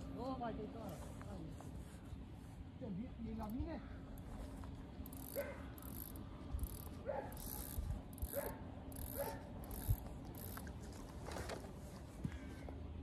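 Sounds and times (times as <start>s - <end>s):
fishing reel clicking: 5.0s - 10.7s.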